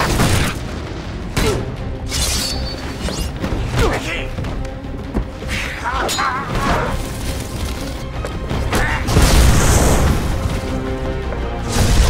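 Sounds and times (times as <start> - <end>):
dramatic orchestral score: 0.0 - 12.0
explosions: 9.1 - 10.6.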